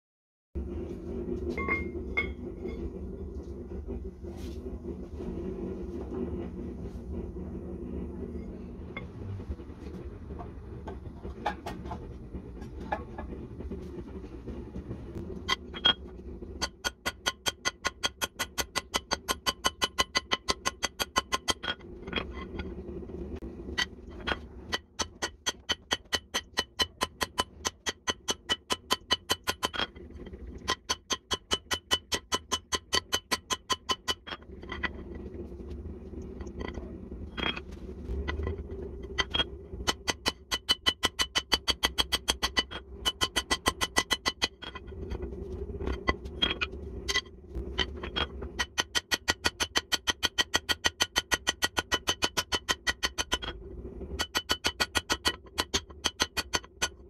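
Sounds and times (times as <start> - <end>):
low rumbling noise: 0.6 - 16.8, 21.6 - 25.4, 34.3 - 40.7, 42.4 - 48.6, 53.4 - 54.2.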